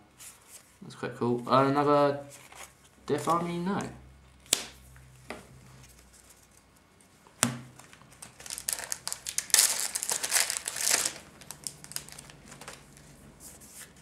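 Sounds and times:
foil wrapper crinkling: 7.8 - 13.2.

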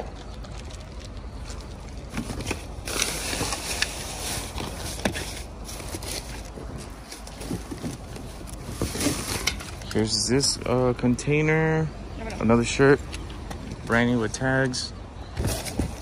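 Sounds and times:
plastic bags rustling: 0.0 - 10.3, 15.2 - 16.0.

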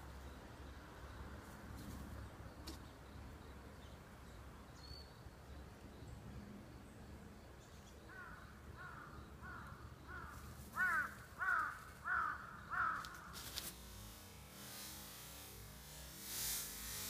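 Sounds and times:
crow cawing: 8.1 - 13.4
brief crackle: 13.0 - 15.5.

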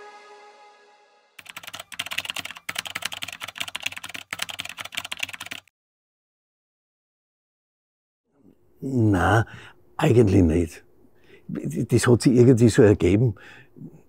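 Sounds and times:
background music: 0.0 - 1.4
rapid keyboard typing: 1.4 - 5.7.

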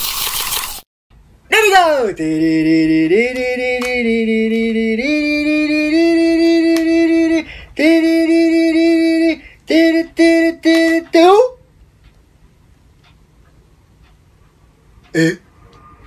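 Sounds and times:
person singing long notes: 2.2 - 11.2.

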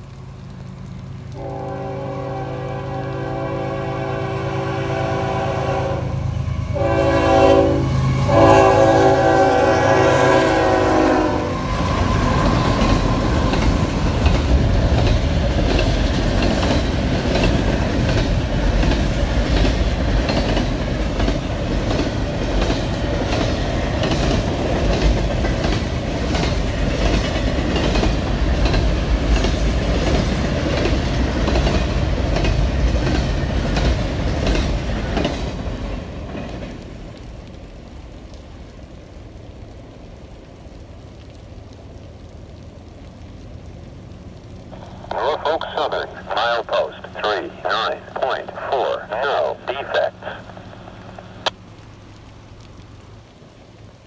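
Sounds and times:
train air horn blasts: 1.4 - 11.6
train wheels clickety-clack: 12.4 - 36.8.

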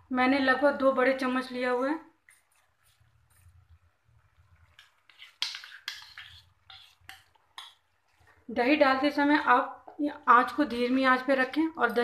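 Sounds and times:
metal spoon scraping a bowl: 4.8 - 7.8.

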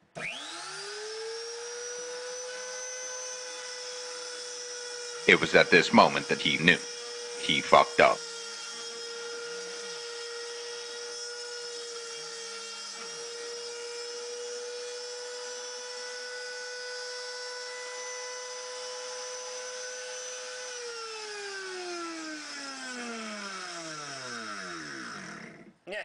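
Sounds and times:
router spindle whining: 0.0 - 25.8.

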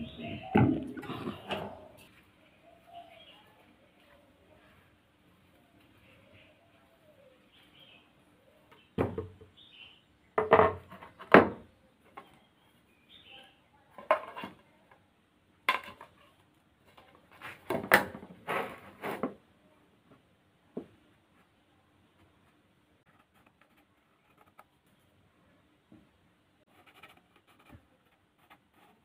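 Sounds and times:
wooden boards knocking and clattering: 0.1 - 1.7, 9.0 - 9.4, 10.4 - 11.7.

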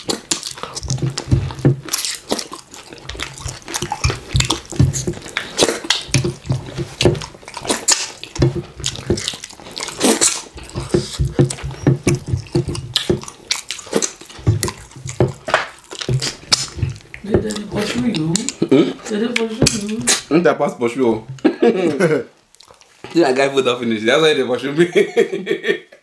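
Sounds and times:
slurping: 0.0 - 20.3
wet chewing and lip smacking: 0.0 - 20.3, 22.4 - 23.1.

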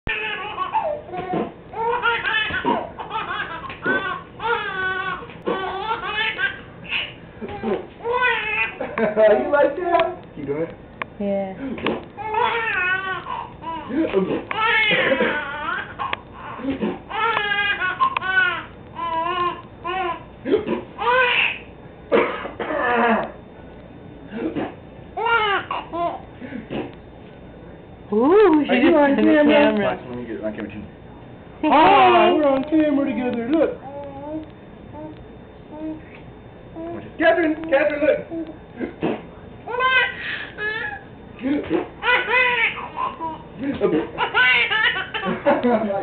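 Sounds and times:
baby laughing: 0.1 - 8.8, 12.2 - 20.2, 39.7 - 41.1, 44.2 - 45.5.

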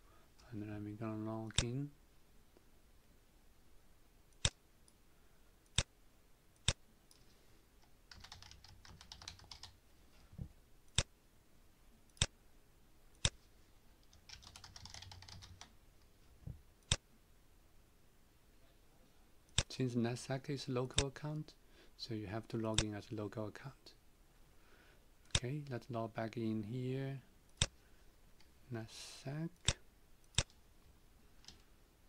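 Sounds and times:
typing on computer keyboard: 8.1 - 9.8, 14.0 - 15.7.

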